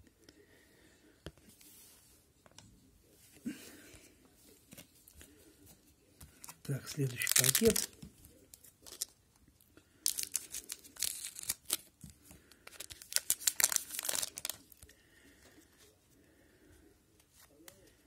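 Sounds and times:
foil wrapper ripping and crinkling: 0:06.4 - 0:08.0, 0:08.8 - 0:09.2, 0:10.0 - 0:11.9, 0:12.7 - 0:14.8.

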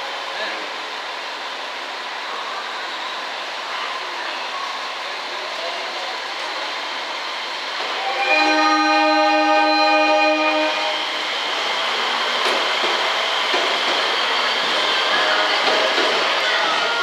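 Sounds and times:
train noise: 0:00.0 - 0:17.0
train horn long blast: 0:08.0 - 0:11.1.

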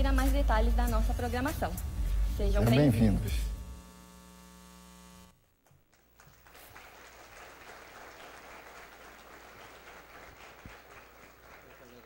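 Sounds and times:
steady held tone: 0:00.0 - 0:05.6
faint audience applause: 0:05.9 - 0:12.0.

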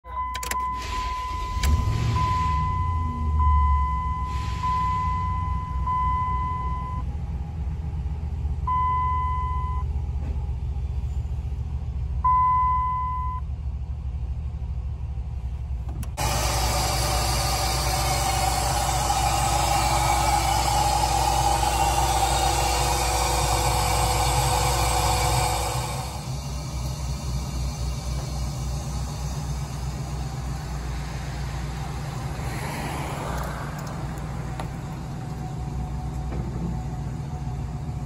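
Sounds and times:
dashboard warning chime: 0:00.0 - 0:07.0, 0:12.3 - 0:13.4
truck engine idling: 0:00.0 - 0:38.0.

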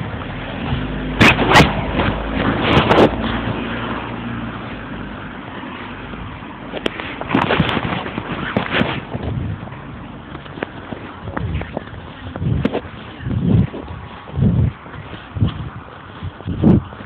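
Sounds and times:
low rumble of road traffic: 0:00.0 - 0:17.0
phone microphone rubbing on clothing: 0:01.2 - 0:17.0.

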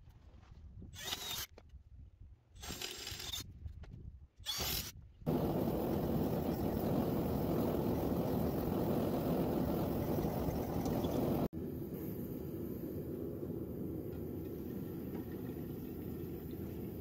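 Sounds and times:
gas forge burner rushing: 0:05.3 - 0:11.5.

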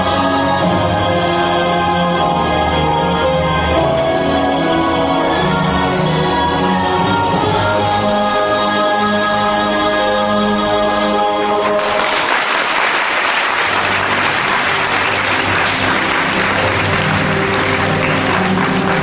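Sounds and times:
audience applause: 0:11.6 - 0:19.0
music sustained chord: 0:13.6 - 0:19.0.

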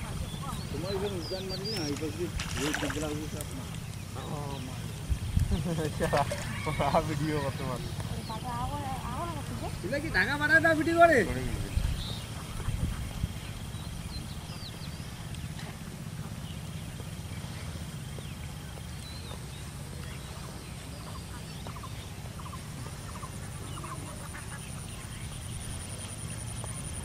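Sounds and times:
steady low rumble: 0:00.0 - 0:06.0, 0:06.8 - 0:27.0
faint bird calls: 0:00.0 - 0:27.0
fowl clucking calls: 0:05.8 - 0:07.8, 0:21.0 - 0:24.9.

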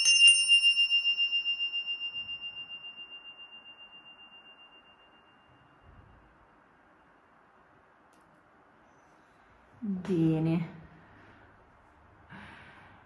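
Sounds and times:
handbell ringing: 0:00.0 - 0:06.0.

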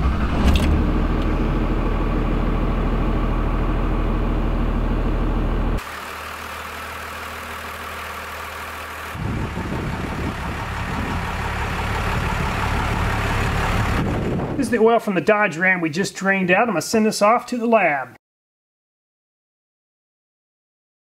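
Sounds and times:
diesel engine idling: 0:00.8 - 0:14.8.

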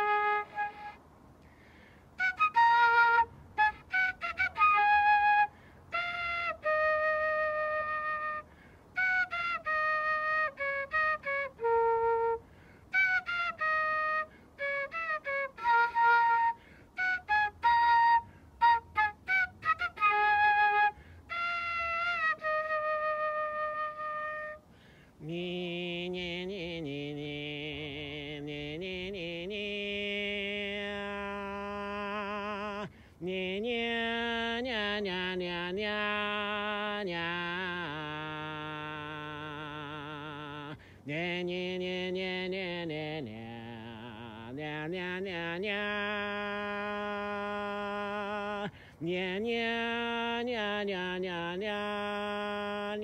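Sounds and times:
flute-like wind instrument melody: 0:00.0 - 0:01.1, 0:02.2 - 0:24.8.

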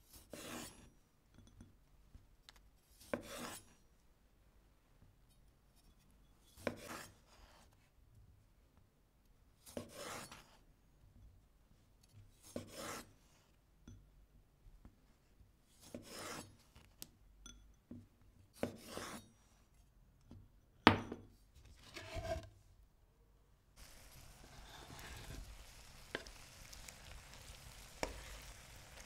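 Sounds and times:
rasping food preparation strokes: 0:15.8 - 0:16.5, 0:23.8 - 0:29.0.

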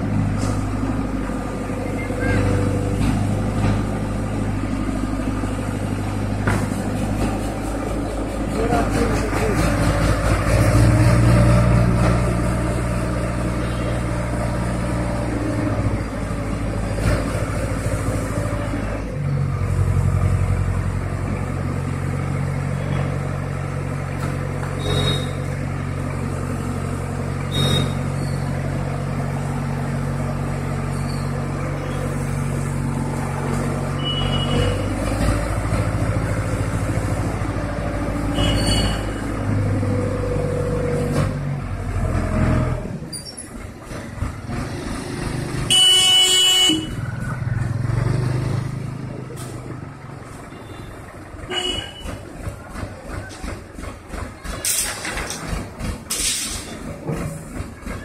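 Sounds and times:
diesel engine running: 0:00.0 - 0:58.0
vehicle horn: 0:38.3 - 0:39.2, 0:45.7 - 0:47.0, 0:50.6 - 0:52.2.

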